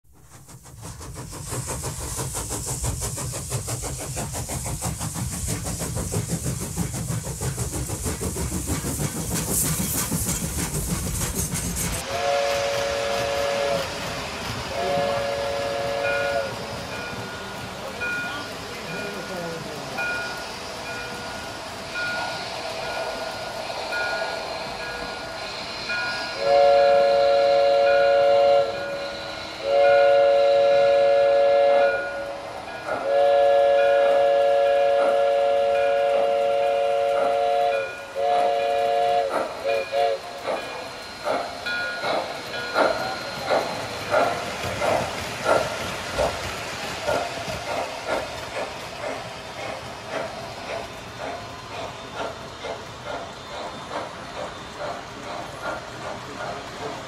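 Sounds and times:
steam locomotive chuffing: 0.0 - 57.0
steam whistle blowing: 11.9 - 17.1, 22.0 - 42.0.

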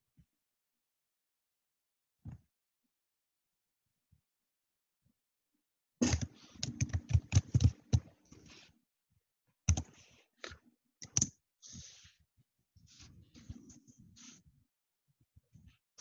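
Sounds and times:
computer keyboard typing: 6.0 - 8.1, 9.7 - 9.9.

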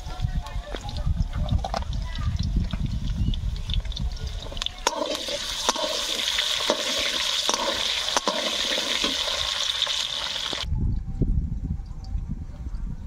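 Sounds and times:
potatoes sizzling in hot oil: 2.0 - 10.7.

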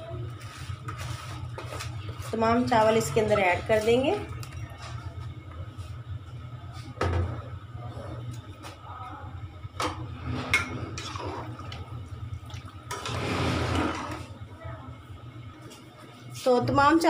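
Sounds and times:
steady low hum: 0.0 - 17.0
spoon stirring and sloshing liquid: 10.4 - 14.4.

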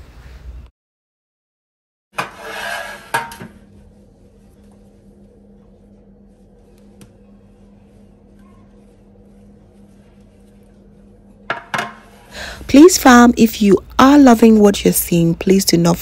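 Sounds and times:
metal tray scraping on countertop: 2.2 - 3.6
faint steady hum: 3.3 - 16.0.

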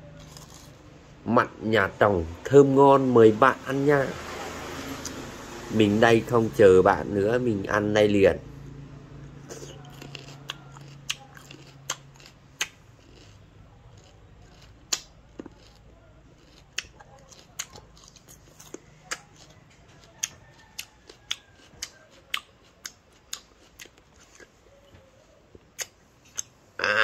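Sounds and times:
fruit crunching in mouth: 0.0 - 1.0, 9.2 - 24.8, 25.5 - 27.0
lip smacks: 9.4 - 12.8, 25.6 - 26.6.

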